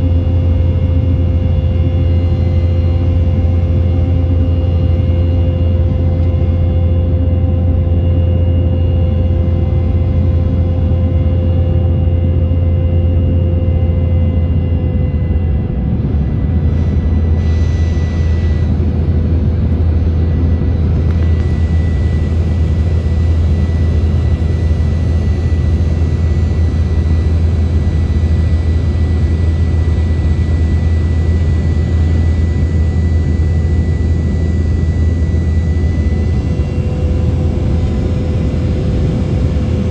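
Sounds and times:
jet engine drone: 0.0s - 39.9s
rushing air in cabin: 16.0s - 29.0s.

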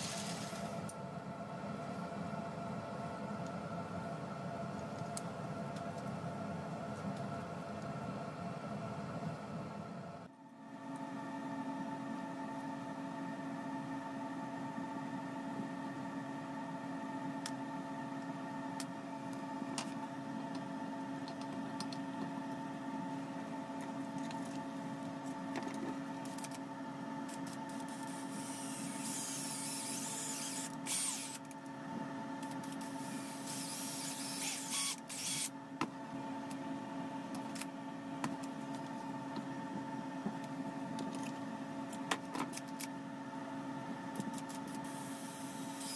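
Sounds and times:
steady machine hum: 0.0s - 45.9s
cordless drill boring: 27.8s - 31.4s, 32.8s - 35.5s, 44.9s - 45.9s.

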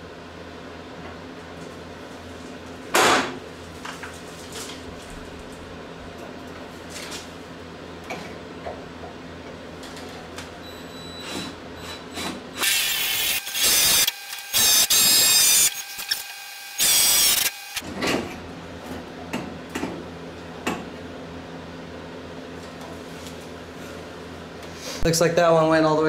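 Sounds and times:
power drill drilling screws: 12.6s - 17.8s.

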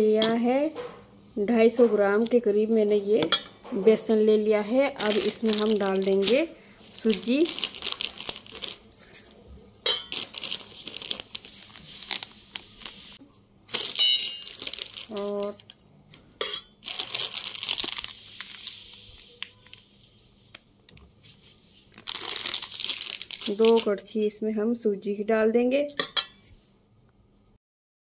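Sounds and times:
plastic packet crinkling: 5.0s - 9.2s, 9.8s - 15.7s, 16.8s - 19.8s, 21.8s - 24.1s.

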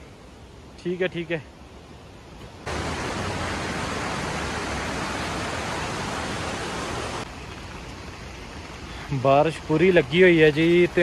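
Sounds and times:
heavy rain falling: 2.7s - 7.3s.

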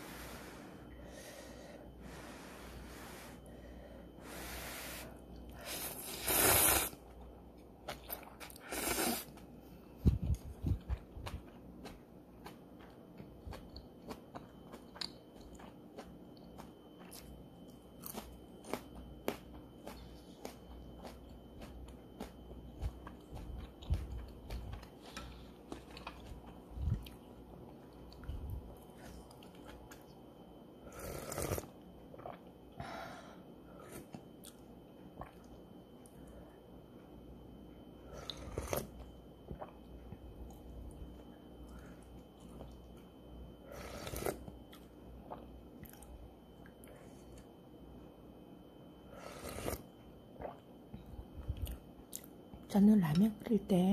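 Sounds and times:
person slurping noodles: 4.3s - 7.0s, 8.7s - 9.3s, 30.9s - 31.7s, 38.2s - 38.9s, 43.7s - 44.4s, 49.2s - 49.9s
close chewing: 10.2s - 30.0s.

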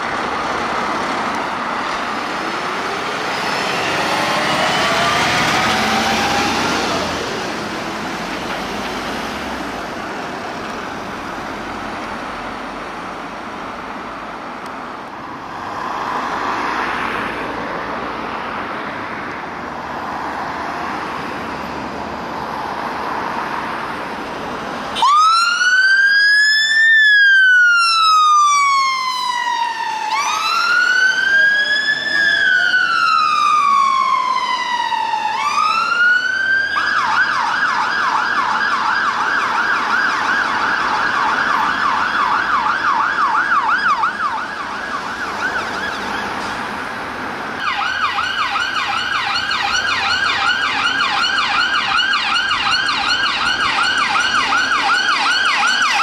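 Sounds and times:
fire engine siren: 0.0s - 19.2s, 22.2s - 56.0s
ambulance siren yelping: 2.3s - 7.7s, 24.9s - 46.4s, 47.6s - 56.0s.

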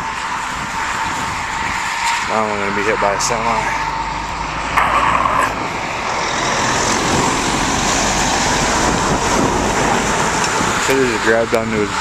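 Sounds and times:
truck engine passing: 0.0s - 12.0s
wind buffeting microphone: 0.0s - 12.0s.

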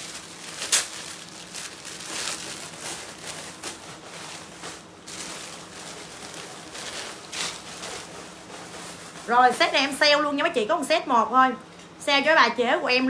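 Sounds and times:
sharp plastic crackle: 0.0s - 9.9s
plastic bags crinkling and rustling: 0.0s - 10.2s.

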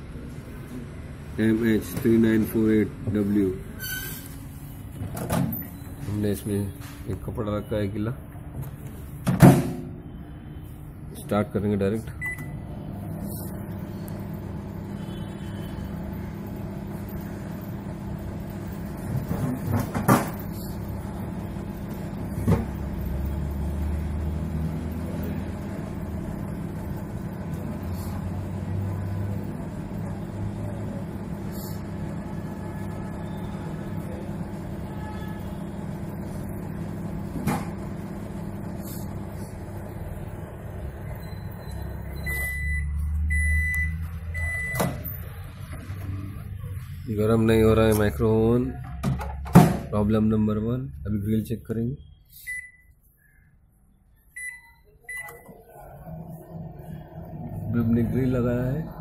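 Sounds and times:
microwave oven humming: 12.1s - 47.2s, 54.3s - 59.0s.

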